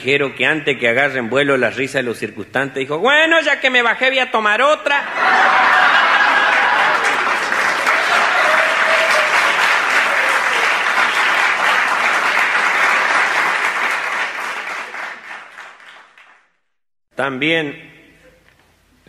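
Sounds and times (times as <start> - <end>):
audience applauding: 5.2 - 16.6.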